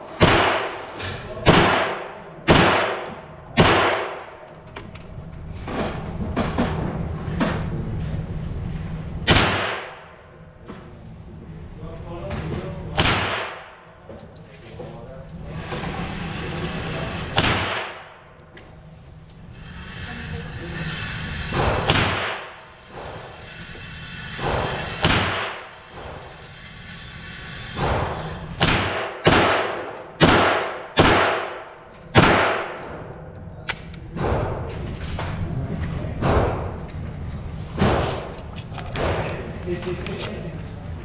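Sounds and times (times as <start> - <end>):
gunshots echoing indoors: 0.0 - 4.6, 9.2 - 10.4, 12.9 - 14.1, 17.2 - 18.4, 21.6 - 23.1, 24.4 - 26.2, 27.8 - 34.9, 36.1 - 36.9, 37.7 - 39.6.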